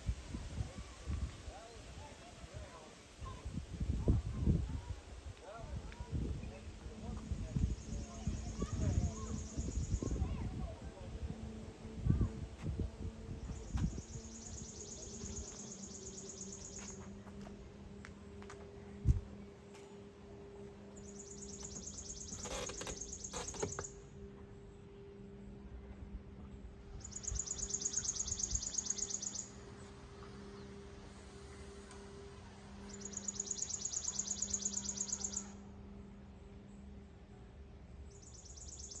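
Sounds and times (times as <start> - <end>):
faint low hum: 0.0 - 39.0
insect chirping trill: 13.6 - 17.0, 21.0 - 24.0, 27.0 - 29.6, 32.8 - 35.6, 38.2 - 39.0.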